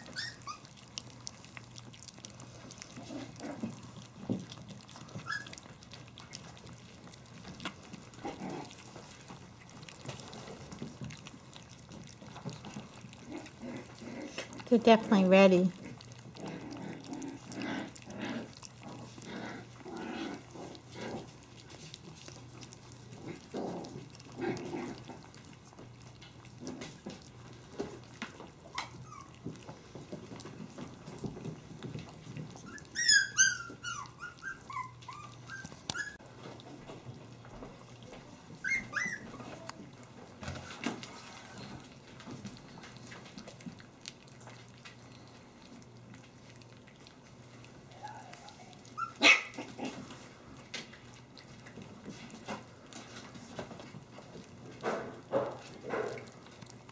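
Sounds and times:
puppy yelping: 0:00.0 - 0:01.1, 0:04.8 - 0:06.4, 0:28.6 - 0:29.4, 0:32.6 - 0:36.2, 0:38.6 - 0:39.8, 0:47.9 - 0:50.0
soft puppy sounds: 0:00.0 - 0:56.9.

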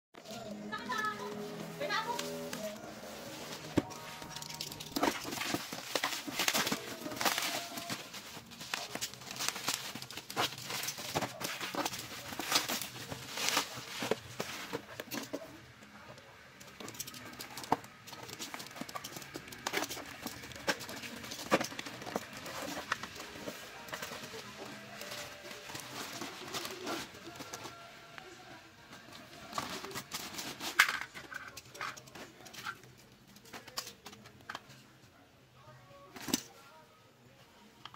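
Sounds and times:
bubble wrap crackling: 0:00.2 - 0:15.6, 0:16.8 - 0:28.4.

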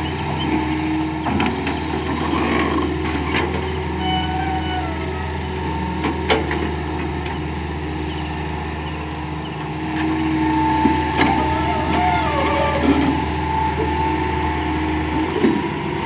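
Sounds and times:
excavator diesel engine running: 0:00.0 - 0:16.0
hydraulic whine: 0:09.8 - 0:15.8.

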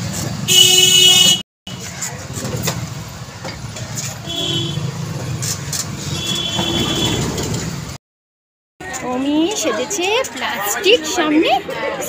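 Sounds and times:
rickshaw rumble and rattle: 0:00.0 - 0:08.0
vehicle horn toots: 0:00.5 - 0:01.4, 0:04.2 - 0:04.9, 0:06.0 - 0:07.5.

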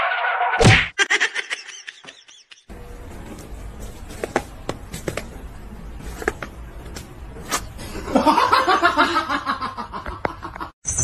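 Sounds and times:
person laughing: 0:01.0 - 0:02.7.

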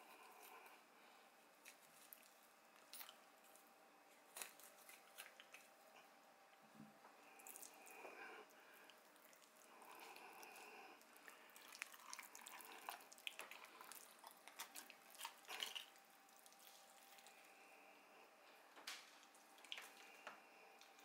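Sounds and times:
knife slitting fish wet squishing: 0:08.9 - 0:17.4.

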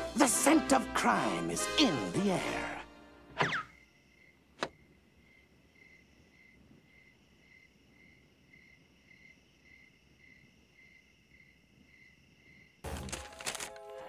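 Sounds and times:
crickets chirping faintly: 0:02.9 - 0:14.0
quick falling swish: 0:03.4 - 0:03.7.

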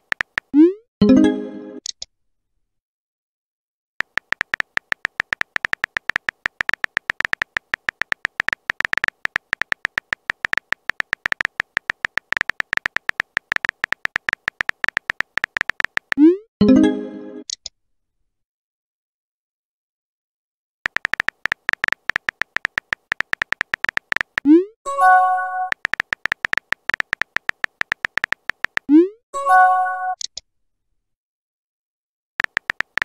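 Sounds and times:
phone keyboard typing clicks: 0:00.0 - 0:00.6, 0:04.0 - 0:16.3, 0:20.9 - 0:24.5, 0:25.6 - 0:28.9, 0:32.4 - 0:33.0.

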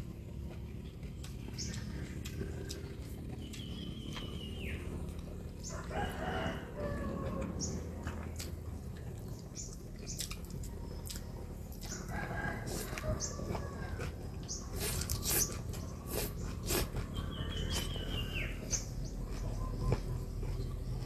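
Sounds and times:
rooster crowing: 0:05.6 - 0:07.8, 0:12.0 - 0:14.3
noodles slurped and chewed: 0:12.6 - 0:18.1.

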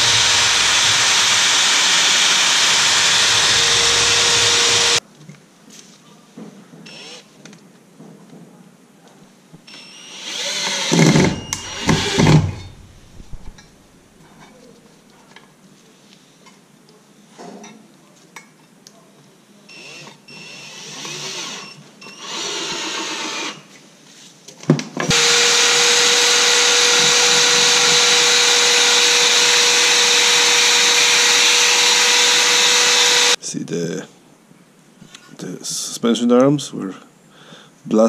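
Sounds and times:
cordless drill bursts: 0:00.0 - 0:05.0, 0:09.7 - 0:12.8, 0:19.7 - 0:23.6, 0:25.1 - 0:33.4
fast power tool running steadily: 0:00.0 - 0:05.0, 0:10.2 - 0:12.7, 0:25.1 - 0:33.4.

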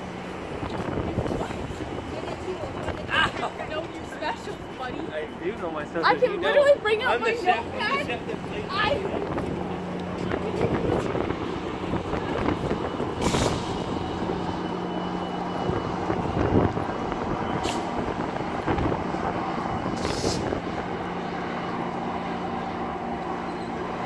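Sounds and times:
diesel locomotive engine hum: 0:00.0 - 0:24.0
train wheels rumbling on rail: 0:08.2 - 0:24.0
short air hisses: 0:20.0 - 0:20.5.

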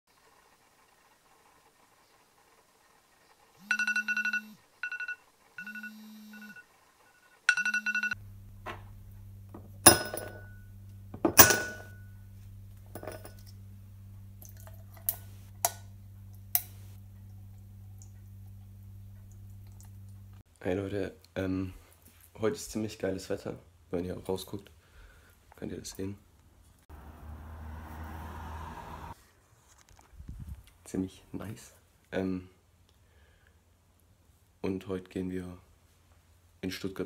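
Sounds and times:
smartphone vibrating: 0:03.6 - 0:06.6
phone ringtone: 0:03.6 - 0:08.2
steady low hum: 0:07.5 - 0:20.4.

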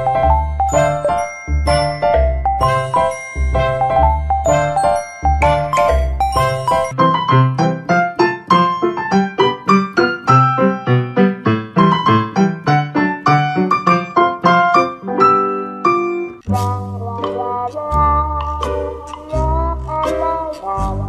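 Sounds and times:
piano tune: 0:00.0 - 0:21.0
low bass line: 0:16.5 - 0:21.0.

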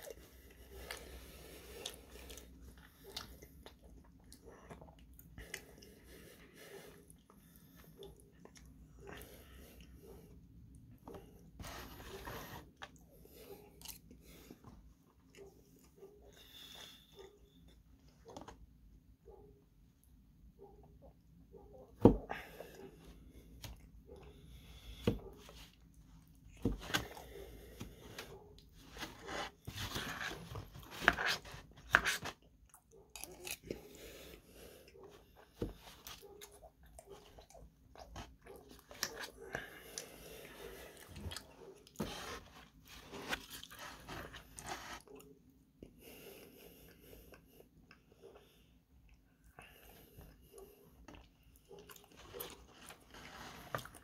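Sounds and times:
wet chewing: 0:32.0 - 0:34.3.

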